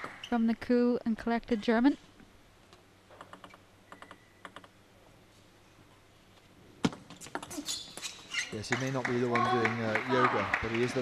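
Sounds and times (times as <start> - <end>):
table tennis ball clicking: 3.2 - 4.8.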